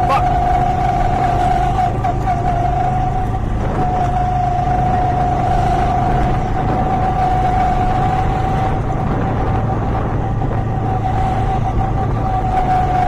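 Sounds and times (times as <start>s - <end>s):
go-kart engine running: 0.0s - 13.0s.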